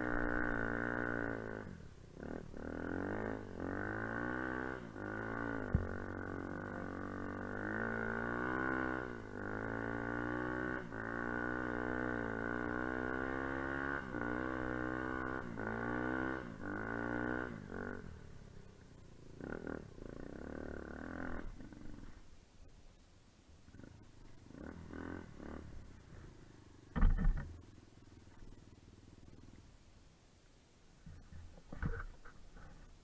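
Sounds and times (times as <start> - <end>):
dirt bike engine revving: 0.0 - 18.4, 19.2 - 22.2, 23.7 - 27.5.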